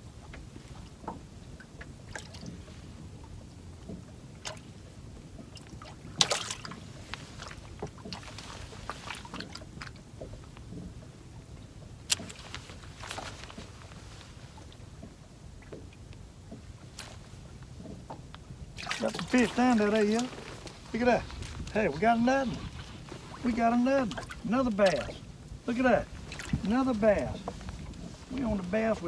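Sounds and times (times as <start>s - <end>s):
wind and water noise: 0.0s - 29.0s
light clicks: 12.1s - 13.7s.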